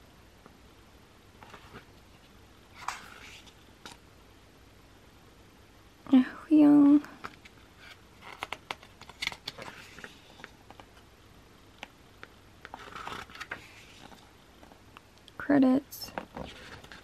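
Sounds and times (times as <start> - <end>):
paper pages rustling: 1.4 - 4.0, 7.3 - 11.0, 12.6 - 14.7, 16.2 - 17.0.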